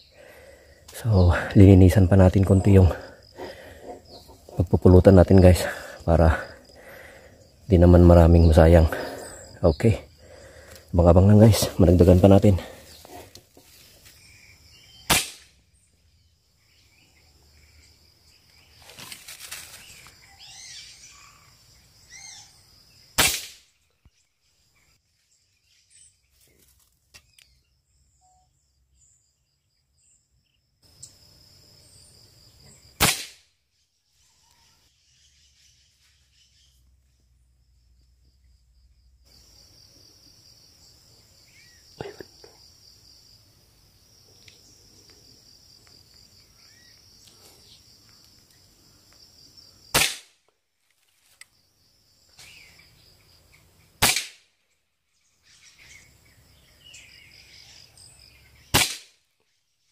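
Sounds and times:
birds chirping: 0.0 - 33.0, 33.6 - 42.8, 44.2 - 49.8, 51.5 - 54.0, 54.6 - 59.9
air rifle shots: 15.1 - 15.6, 23.2 - 23.7, 33.0 - 33.5, 49.9 - 50.4, 54.0 - 54.5, 58.7 - 59.2
high insect buzz: 28.5 - 50.2.

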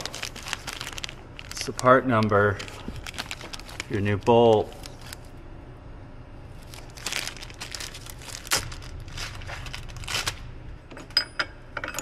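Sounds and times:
plastic bag crinkling: 0.0 - 5.3, 6.6 - 10.5.

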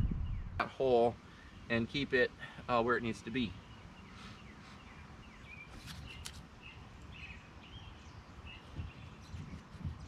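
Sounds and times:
bird chirps: 3.2 - 10.0.

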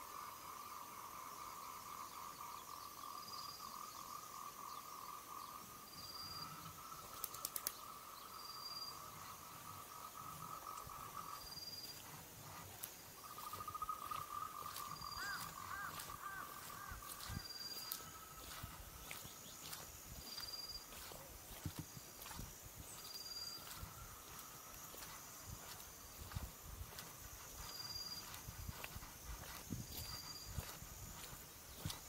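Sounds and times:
sharp clicks: 7.1 - 7.8.

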